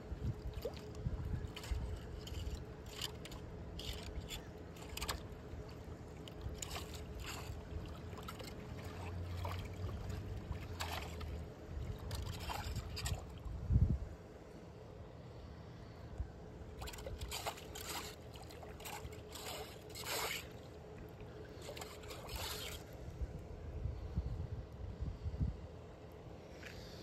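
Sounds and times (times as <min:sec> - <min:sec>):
water sloshing and trickling: 0:00.0 - 0:14.2, 0:16.6 - 0:23.6
hand rake scraping wet leaves: 0:17.2 - 0:20.6, 0:21.6 - 0:22.8.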